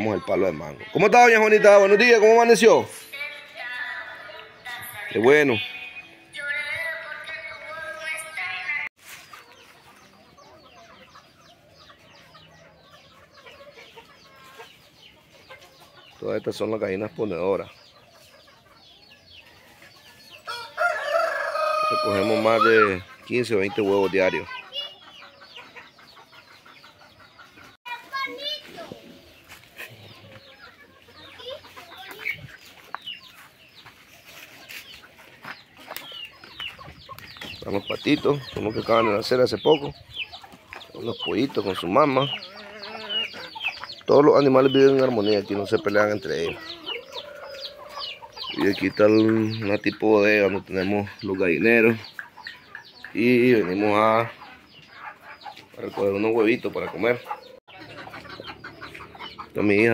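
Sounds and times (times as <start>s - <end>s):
chickens clucking and calling: 0.0s - 59.9s.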